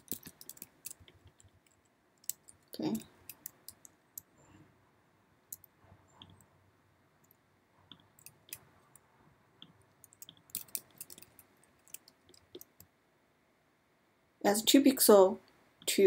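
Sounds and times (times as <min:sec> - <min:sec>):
computer mouse and keyboard clicks: 0:00.0 - 0:04.3, 0:07.2 - 0:09.0, 0:09.6 - 0:12.9.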